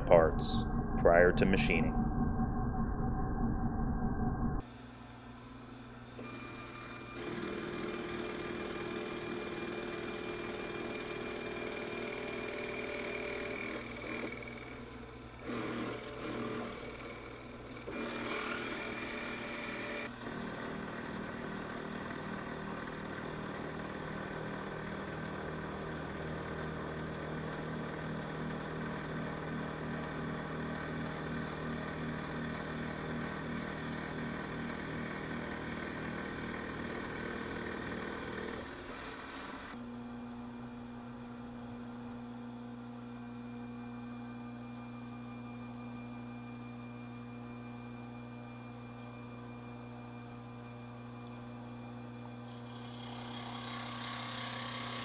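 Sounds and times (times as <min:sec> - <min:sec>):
low even pulsing: 0:00.0 - 0:04.6
milling machine whine: 0:06.1 - 0:39.8.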